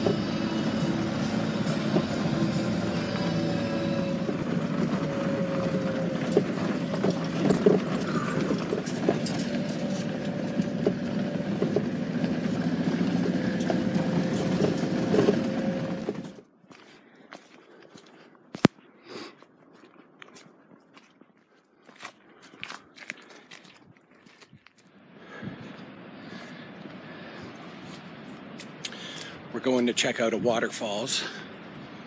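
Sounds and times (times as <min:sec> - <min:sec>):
engine and tyre noise: 0:00.0 - 0:32.0
knocks and rattles over stones: 0:05.8 - 0:16.4.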